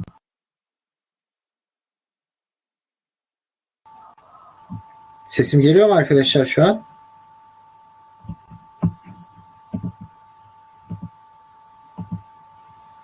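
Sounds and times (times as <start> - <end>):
faint high-pitched tone: 3.9 - 13.0
soft low thumps: 8.2 - 10.2, 10.9 - 11.2, 11.9 - 12.4.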